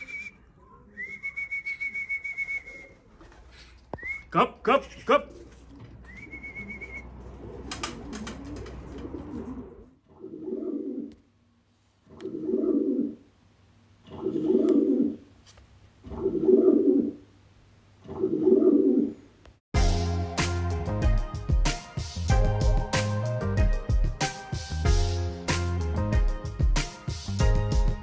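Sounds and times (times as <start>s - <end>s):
pigeon cooing: 0.0s - 4.2s, 4.8s - 11.3s, 12.1s - 13.3s, 14.0s - 15.3s, 16.0s - 17.3s, 18.1s - 19.3s
music: 19.8s - 28.0s.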